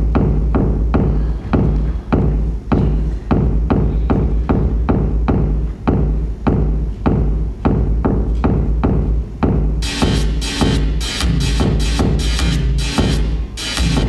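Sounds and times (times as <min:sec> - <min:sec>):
deep bass drone: 0:00.0 - 0:14.0
percussive hits: 0:00.0 - 0:14.0.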